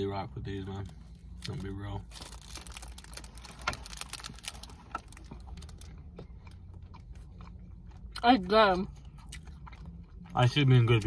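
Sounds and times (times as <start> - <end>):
low steady hum: 0.0 - 11.0
plastic bag crinkling: 1.4 - 5.9.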